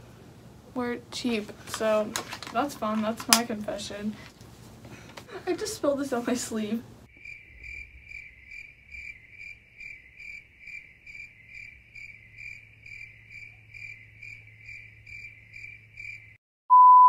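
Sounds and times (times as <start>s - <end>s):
cricket chirping: 7.1s - 16.4s.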